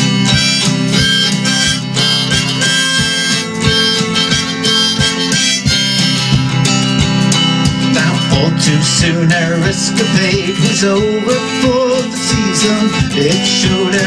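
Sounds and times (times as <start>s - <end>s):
harmonica melody: 0.0s - 8.6s
strummed acoustic guitar: 0.0s - 14.0s.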